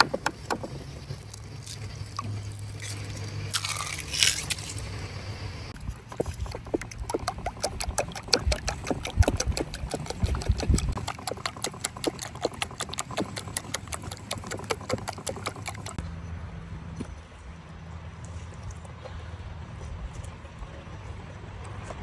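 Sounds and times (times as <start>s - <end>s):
wooden utensil beating eggs in bowl: 5.9s - 16.0s.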